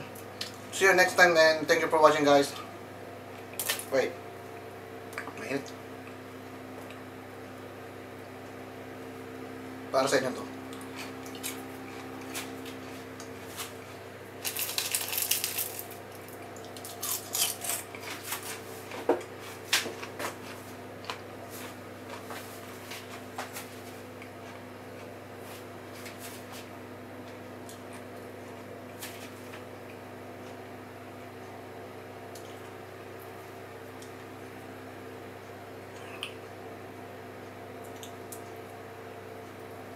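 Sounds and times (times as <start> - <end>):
steady low hum: 0.0 - 39.9
crackly clicks and clatters: 14.4 - 18.1.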